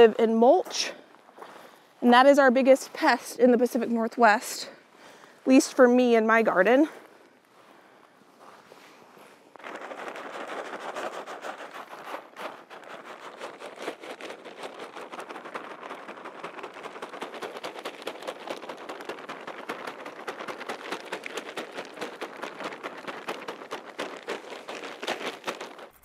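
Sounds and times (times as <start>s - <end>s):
rain pattering: 14.1s - 26.0s.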